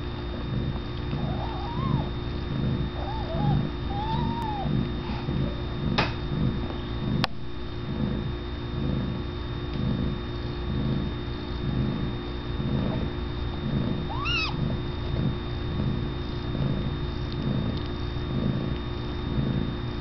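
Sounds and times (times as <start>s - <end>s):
cat purring: 0.0s - 20.0s
kittens mewing: 0.5s - 6.0s, 13.6s - 16.0s.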